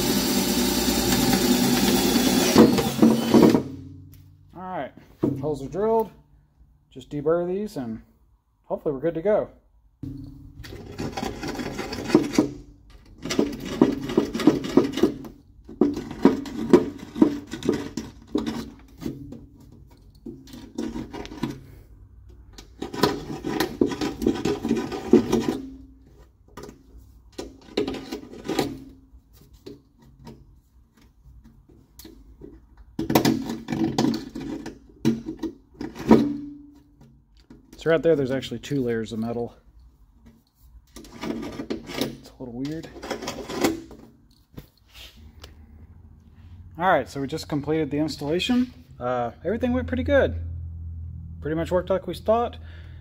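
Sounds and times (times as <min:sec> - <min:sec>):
deburring tool scraping metal: 0:10.0 - 0:19.2.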